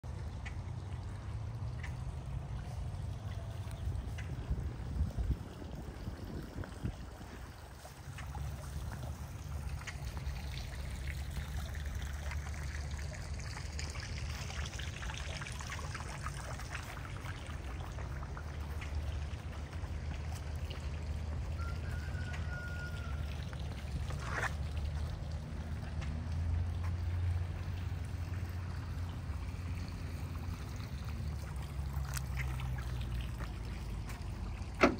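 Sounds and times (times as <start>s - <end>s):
fountain water trickling and splashing: 0.0s - 34.9s.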